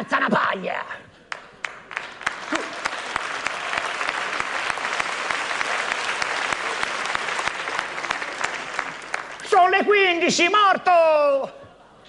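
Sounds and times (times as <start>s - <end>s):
audience applauding: 1.3s - 10.0s.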